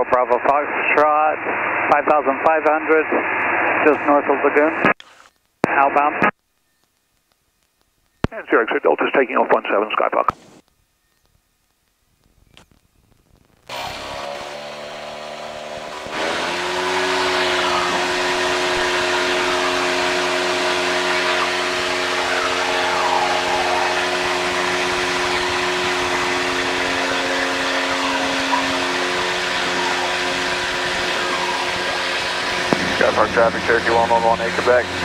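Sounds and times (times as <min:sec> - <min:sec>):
aircraft engine and propeller drone: 0:13.7 - 0:35.0.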